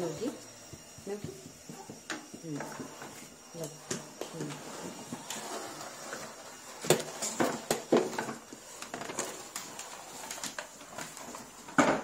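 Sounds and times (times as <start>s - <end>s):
vacuum cylinder moved over carpet: 0.0s - 11.8s.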